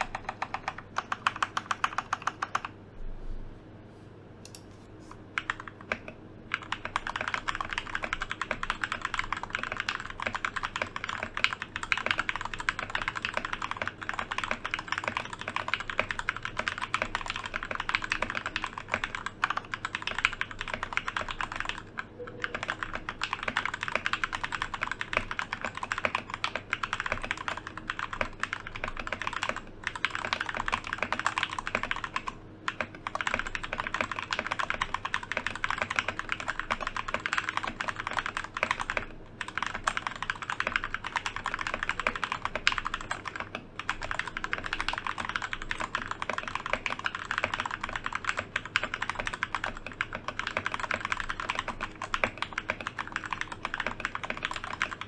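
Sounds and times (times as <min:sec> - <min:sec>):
fast typing on mechanical keyboard: 0:00.0 - 0:02.8, 0:05.3 - 0:55.0.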